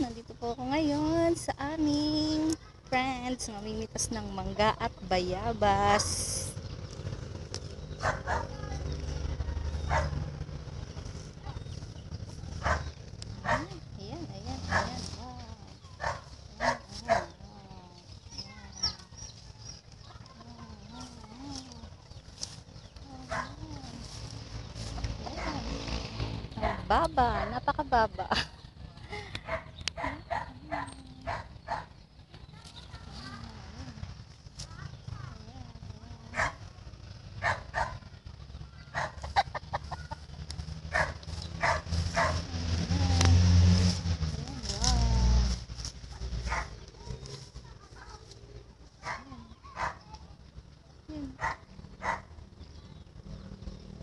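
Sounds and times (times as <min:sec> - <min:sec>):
low steady rumble: 0:00.0 - 0:54.0
dog barking: 0:08.0 - 0:08.6, 0:09.8 - 0:10.2, 0:12.6 - 0:13.8, 0:14.7 - 0:15.0, 0:16.0 - 0:17.4, 0:23.3 - 0:23.6, 0:29.4 - 0:31.9, 0:36.3 - 0:36.7, 0:37.4 - 0:38.0, 0:38.9 - 0:39.2, 0:40.9 - 0:42.4, 0:46.5 - 0:46.8, 0:49.0 - 0:50.1, 0:51.4 - 0:52.3.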